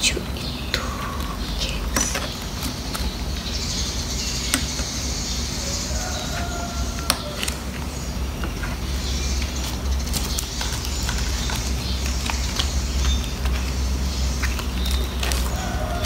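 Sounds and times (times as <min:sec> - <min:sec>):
steady low rumble: 0:00.0 - 0:16.0
plastic pages crinkling: 0:06.1 - 0:16.0.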